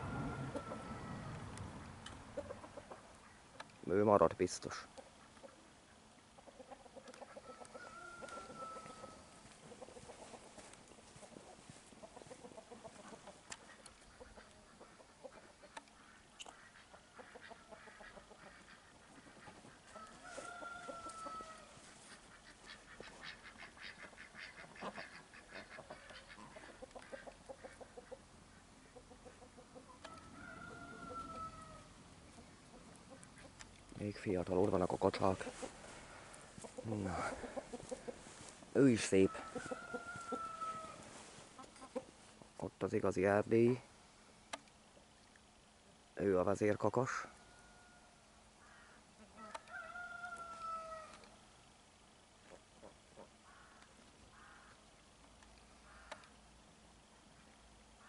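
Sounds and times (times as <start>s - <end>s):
chicken falling call: 0.0s - 1.5s, 7.2s - 11.4s, 16.0s - 27.3s, 30.0s - 32.5s, 34.9s - 42.1s, 48.6s - 51.2s
chickens clucking: 0.0s - 43.8s, 52.4s - 53.8s.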